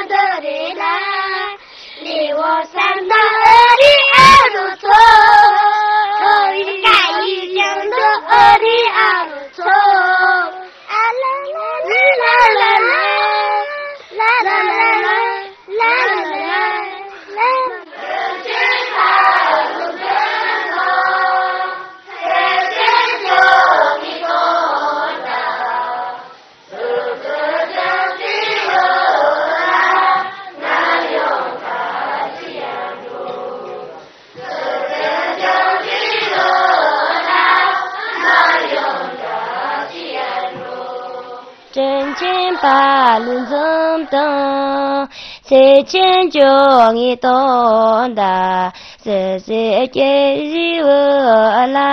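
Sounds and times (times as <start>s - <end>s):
children chanting in unison: 14.4s - 44.4s.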